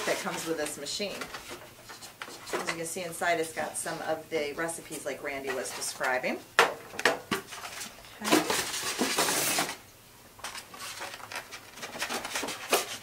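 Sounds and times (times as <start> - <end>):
packing material scraping rustle: 7.5 - 9.8, 10.5 - 13.0.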